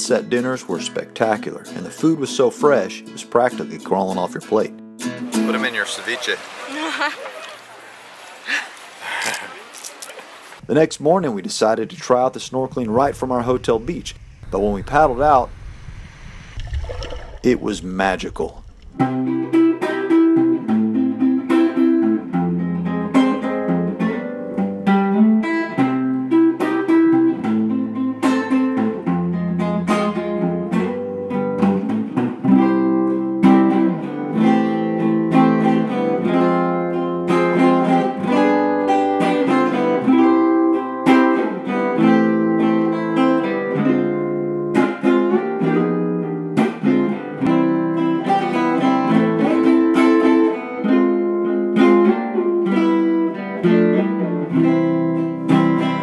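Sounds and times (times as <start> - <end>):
acoustic guitar plucked notes: 0.0 - 6.2, 19.0 - 56.0.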